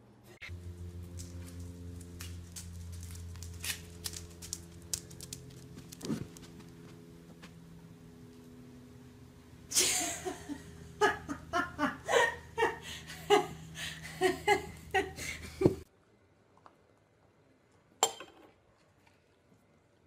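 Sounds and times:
steady low hum: 0.0s - 16.4s
person laughing hard: 9.7s - 15.8s.

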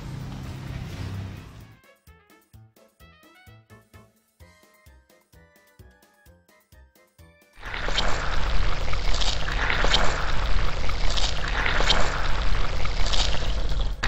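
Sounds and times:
rushing water: 7.6s - 14.0s.

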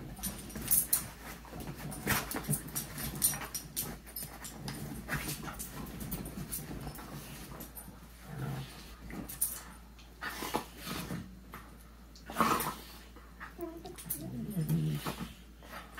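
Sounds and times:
rustles and knocks: 0.0s - 9.8s
dogs scuffling: 0.0s - 11.7s
low dog sound: 13.4s - 15.9s.

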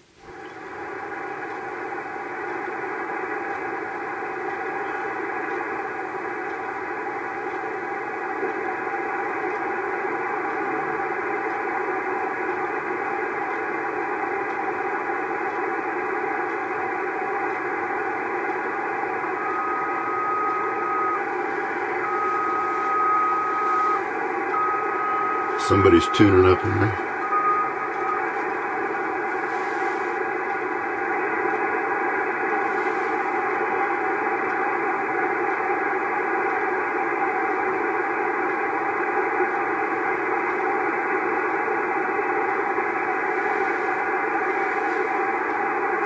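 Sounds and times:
radio static and hiss: 0.0s - 46.0s
steady radio whistle: 14.9s - 37.0s, 38.9s - 46.0s.

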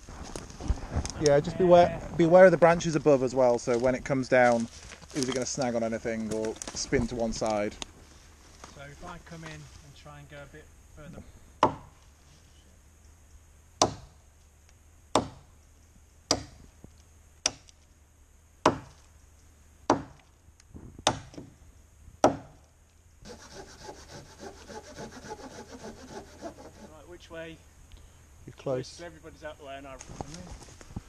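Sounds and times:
axe chopping wood: 11.6s - 11.9s, 13.8s - 14.1s, 15.2s - 15.4s, 16.3s - 16.6s, 18.6s - 19.0s, 19.9s - 20.2s, 21.0s - 21.5s, 22.2s - 22.6s
saw rasping through trunk: 23.2s - 27.1s.

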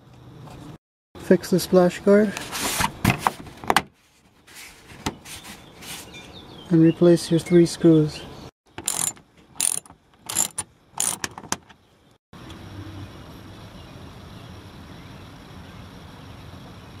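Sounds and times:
hand ratchet clicking: 8.8s - 11.6s.

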